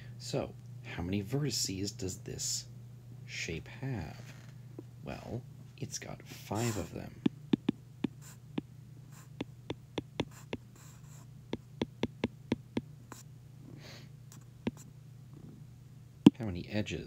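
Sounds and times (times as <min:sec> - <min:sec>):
steady low hum: 0:00.0 - 0:17.0
stylus tapping on glass screen: 0:07.5 - 0:08.3, 0:09.4 - 0:10.7, 0:11.6 - 0:12.8.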